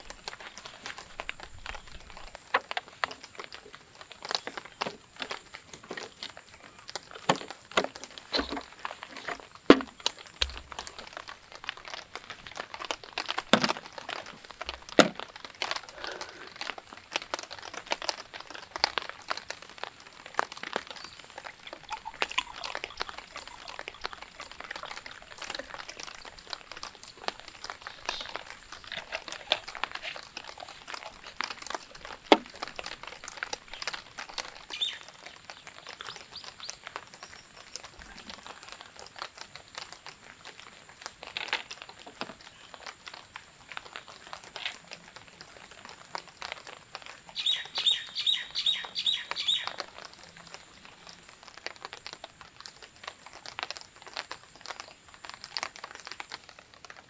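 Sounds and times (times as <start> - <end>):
light clicks and crinkling: 0.0 - 57.0.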